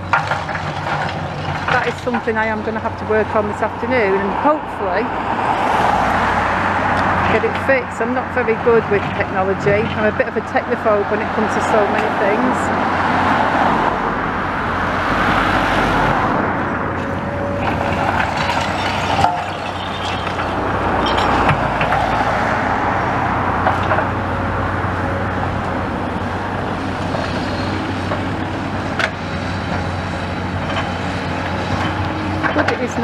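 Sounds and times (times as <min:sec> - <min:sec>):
cars passing: 0:00.0 - 0:33.0.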